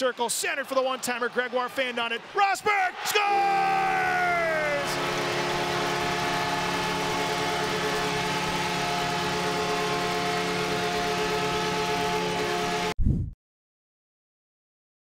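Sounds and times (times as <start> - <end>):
crowd cheering: 0.0 - 12.9
arena goal horn chord: 2.9 - 13.0.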